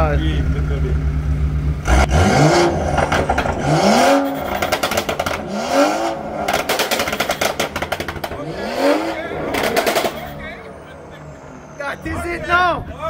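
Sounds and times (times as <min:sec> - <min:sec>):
car engine revving: 0:00.0 - 0:12.6
exhaust crackling pops: 0:01.8 - 0:10.6.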